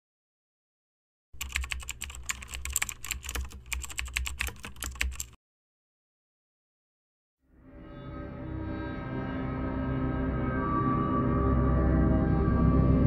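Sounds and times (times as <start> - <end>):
rapid keyboard key clicks: 1.4 - 5.4.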